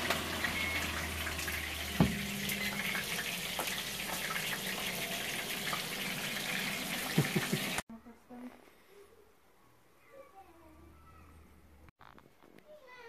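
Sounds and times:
pressure cooker running: 0.0 - 7.8.

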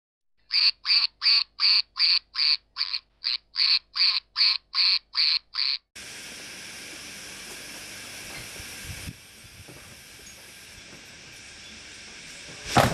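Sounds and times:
duck quacking: 0.5 - 5.9
steady hiss: 6.0 - 12.9.

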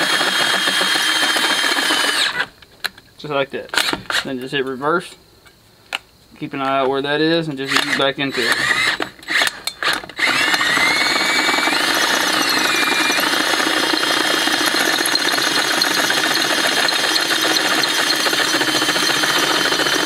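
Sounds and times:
drill bit grinding metal: 0.0 - 2.5, 7.7 - 20.0
electric drill motor whine: 0.0 - 2.5, 7.7 - 20.0.

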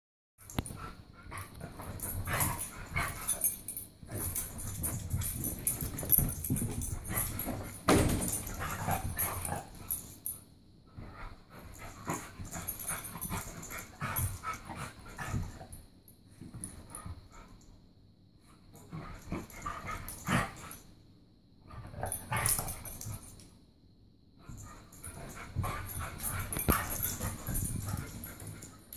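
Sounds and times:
dogs growling and barking: 0.6 - 10.2, 18.9 - 20.8
dogs scuffling: 1.6 - 10.1, 25.0 - 28.9.

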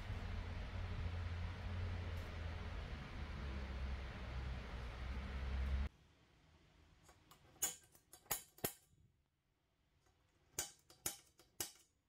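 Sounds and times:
center punch clicking on steel: 10.6 - 11.9.

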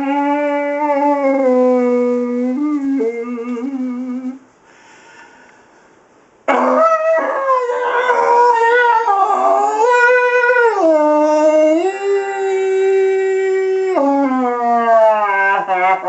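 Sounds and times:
man making horn-like tone through tube: 0.0 - 4.4.

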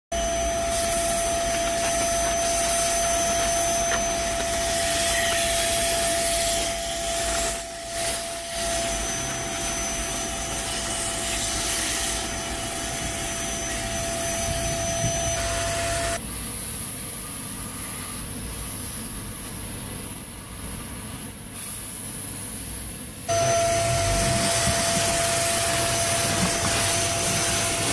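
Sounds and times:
vacuum cleaner whining: 0.2 - 16.2, 23.3 - 27.9.

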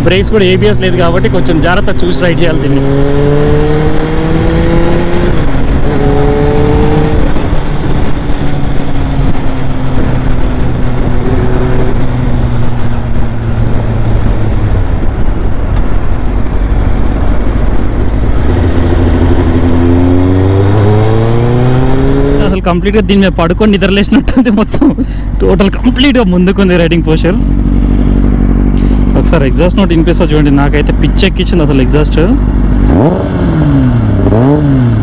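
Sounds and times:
wind rush on microphone: 0.0 - 25.9
motorcycle engine revving: 0.0 - 35.0.

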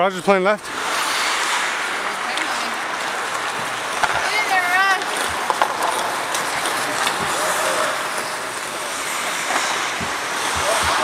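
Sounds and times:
hiss of skates on ice: 0.7 - 11.0
sticks and puck clicking: 2.3 - 11.0.

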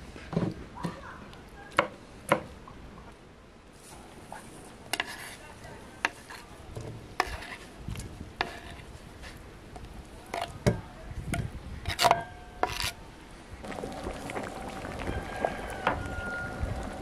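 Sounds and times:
knife scraping cutting board: 5.0 - 5.4, 7.2 - 7.7, 8.4 - 9.4, 11.9 - 13.0.

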